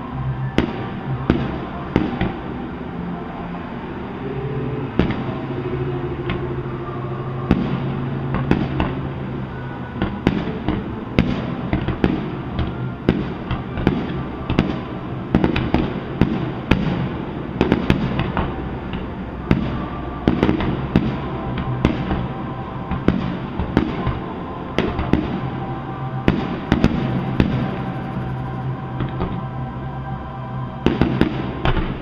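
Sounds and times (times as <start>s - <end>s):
distant fireworks bangs: 4.9s - 5.5s, 7.4s - 29.5s, 30.8s - 32.0s.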